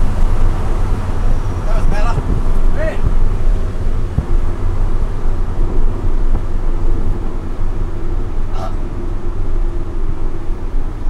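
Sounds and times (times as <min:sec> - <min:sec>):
car engine running: 0:00.0 - 0:11.0
road and wind noise: 0:00.0 - 0:11.0.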